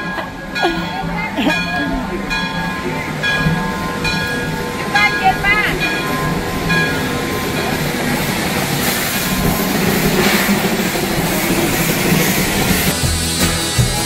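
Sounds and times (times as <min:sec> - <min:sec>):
steam locomotive rolling: 0:00.0 - 0:14.0
steam hissing: 0:03.1 - 0:14.0.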